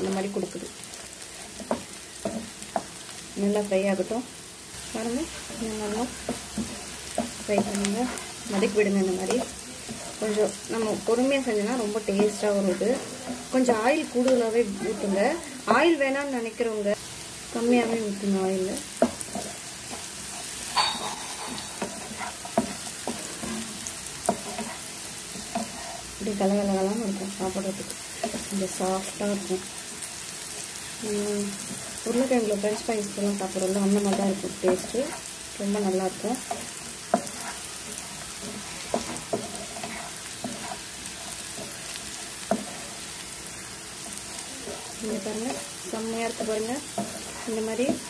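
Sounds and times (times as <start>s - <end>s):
food sizzling in oil: 0.0s - 48.0s
wooden spatula scraping a pan: 5.2s - 15.4s, 18.8s - 29.2s, 31.5s - 48.0s.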